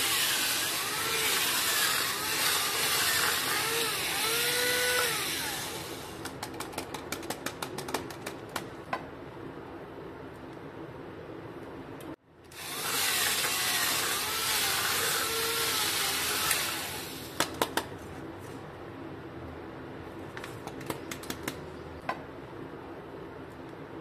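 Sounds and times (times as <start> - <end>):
electric coconut scraper whirring: 0.0 - 6.2, 12.6 - 17.3.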